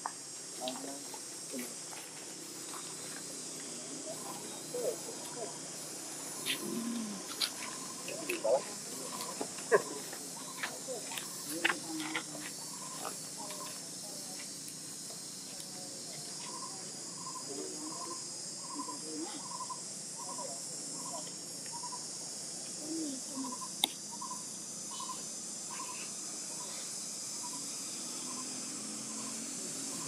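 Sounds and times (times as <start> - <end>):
high-pitched insect drone: 0.0 - 30.0
sharp click: 23.8 - 24.0.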